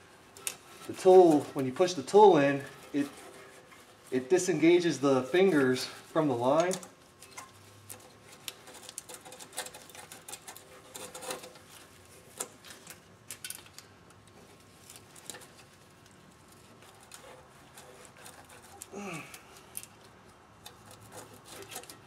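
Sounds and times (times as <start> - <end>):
faint plastic clicking and scraping: 6.5 - 22.0.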